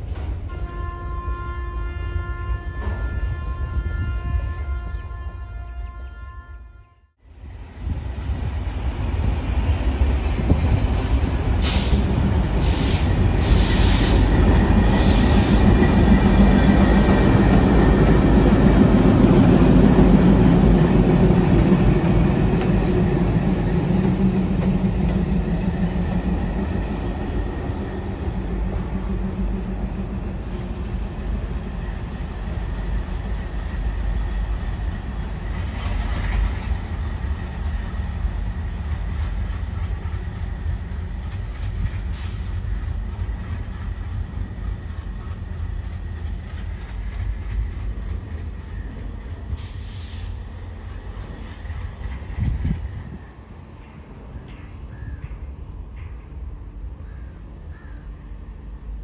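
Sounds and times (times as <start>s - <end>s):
diesel locomotive engine rumble: 7.3s - 59.0s.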